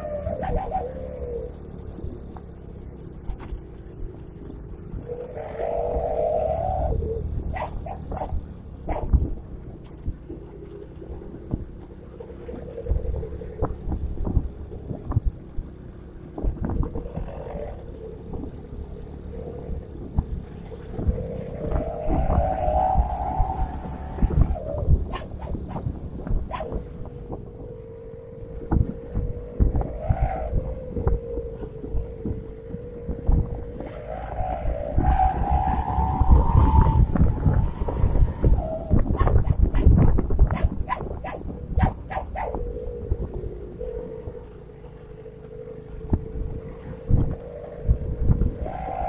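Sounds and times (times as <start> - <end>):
howling bus exhaust: 0.0 - 15.6, 16.4 - 49.0
diesel engine droning: 0.0 - 49.0
wind buffeting microphone: 0.0 - 49.0.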